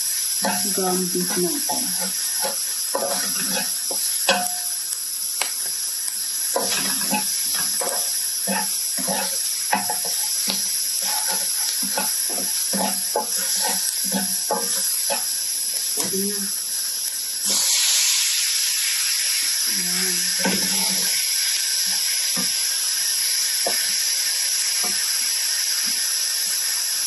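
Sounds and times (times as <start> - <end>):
spatula scraping wok: 0.0 - 4.8, 6.5 - 16.2, 20.2 - 22.5
onion sizzling in hot oil: 0.0 - 27.0.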